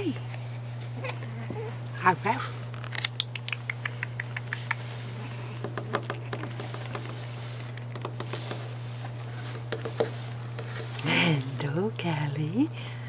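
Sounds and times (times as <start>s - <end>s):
steady low hum: 0.0s - 13.0s
puppy paws clicking on wood: 3.2s - 5.0s, 5.6s - 8.7s, 9.6s - 11.0s.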